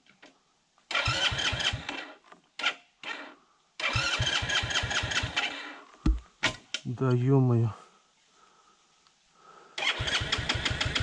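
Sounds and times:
engine turning over: 0.9 - 2.0, 3.8 - 5.5, 9.8 - 11.0.

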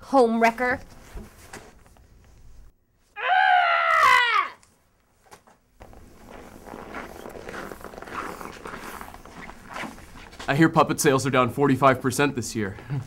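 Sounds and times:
loud human scream: 3.2 - 4.6.

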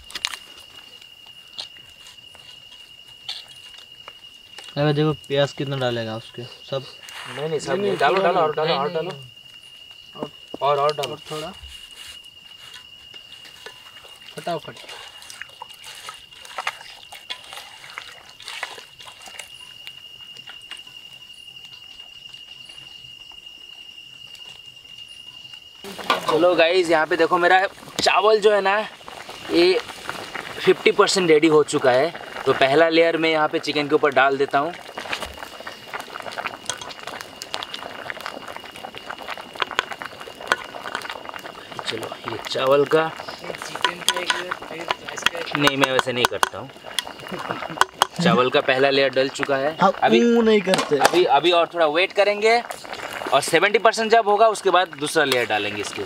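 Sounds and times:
insects trilling: 0.0 - 56.0
rice bubbling at a rolling boil: 0.0 - 56.0
hands mixing food in metal pot: 12.6 - 19.8, 25.9 - 32.8, 39.6 - 49.5.

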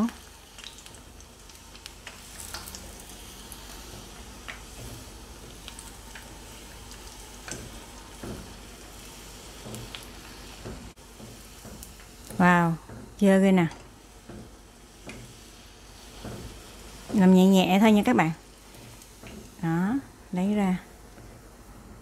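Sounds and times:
oil popping and crackling: 0.0 - 12.4
oil sizzling in a frying pan: 0.0 - 22.0.

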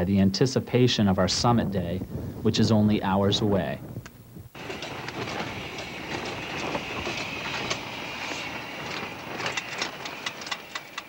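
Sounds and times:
camping stove hissing: 4.3 - 11.0
clicks and knocks of gear: 4.6 - 11.0.

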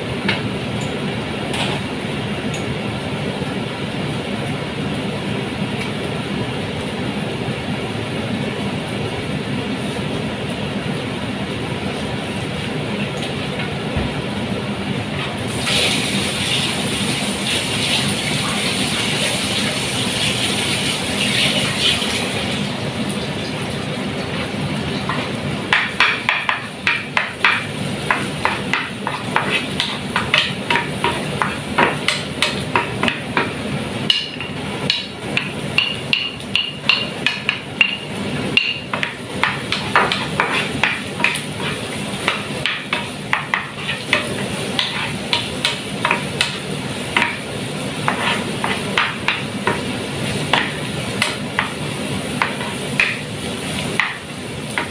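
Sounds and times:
onions sizzling in a pan: 15.5 - 22.4, 24.4 - 54.9
wooden spatula scraping a pan: 29.1 - 30.5, 39.8 - 45.3, 48.0 - 49.0.

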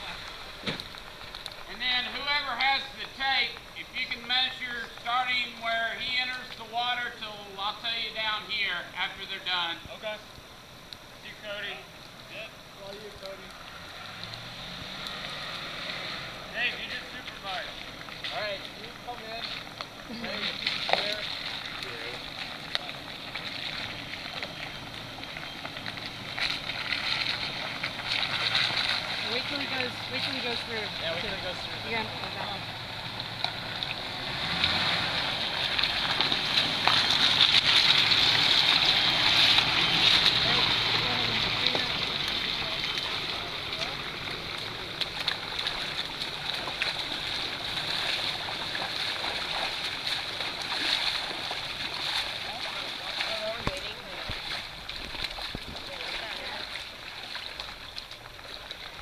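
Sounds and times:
water splashing around tyres: 0.0 - 59.0
truck engine running low: 11.9 - 53.2.

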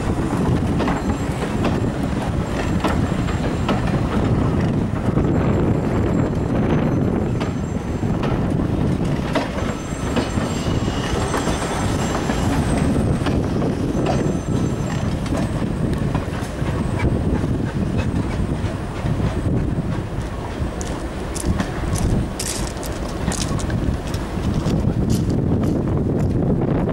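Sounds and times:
high wheel squeal: 0.0 - 18.8
wheels clicking over rail joints: 0.0 - 26.5
train coaches rumbling past: 0.0 - 26.9.

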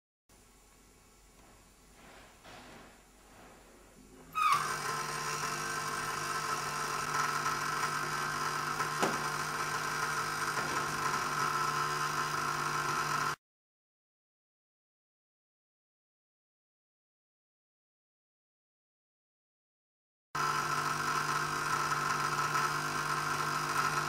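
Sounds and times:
induction coil buzzing: 4.3 - 13.4.

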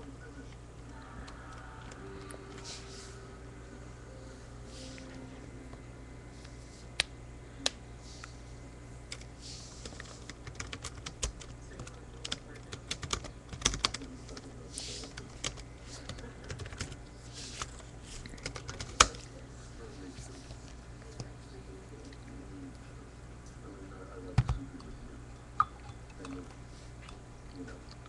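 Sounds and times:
low hum: 0.0 - 12.7.

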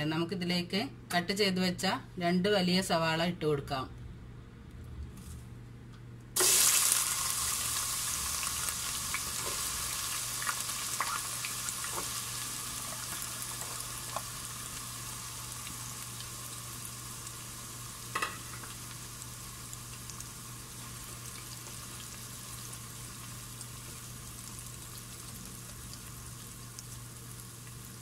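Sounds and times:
onions sizzling in oil: 6.4 - 28.0.

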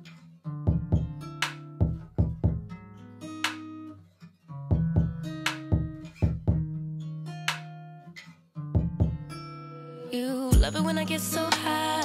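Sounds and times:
guitar music over a beat: 0.0 - 12.0.

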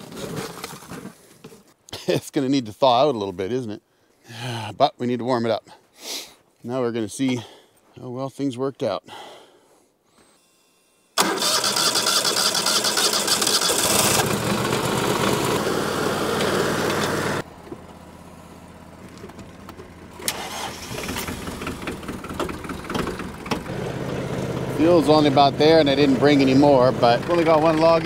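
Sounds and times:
engine starting and running: 10.4 - 28.0.

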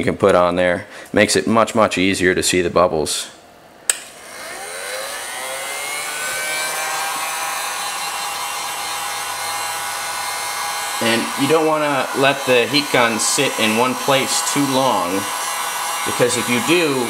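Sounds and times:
heat gun fan whine: 3.8 - 17.0
heat gun switch click: 3.9 - 4.2.

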